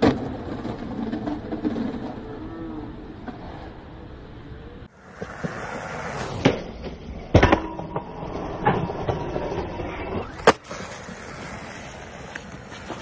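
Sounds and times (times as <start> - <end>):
skateboard clacks: 0.0 - 3.8, 5.0 - 8.1
skateboard scraping on metal rail: 0.0 - 4.2, 5.0 - 13.0.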